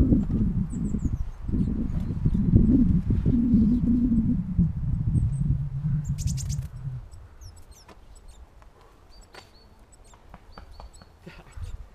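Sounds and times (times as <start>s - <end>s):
low rumble: 0.0s - 7.2s
small birds chirping: 0.6s - 2.8s, 4.9s - 11.9s.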